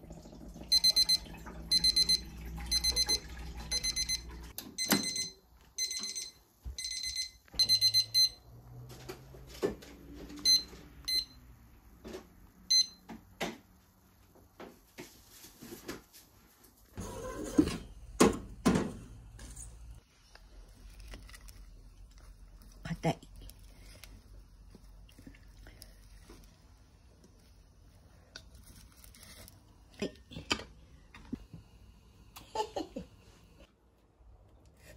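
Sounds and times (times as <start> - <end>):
kitchen timer rapid high beeps: 0.6 - 8.4, 10.5 - 11.4.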